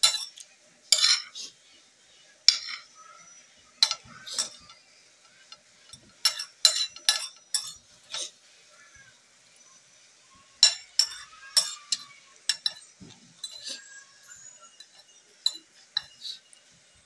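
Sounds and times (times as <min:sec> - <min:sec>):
cutlery clinking on a plate: 0:00.0 - 0:01.5, 0:02.5 - 0:02.9, 0:03.8 - 0:04.8, 0:05.5 - 0:08.3, 0:10.6 - 0:16.5.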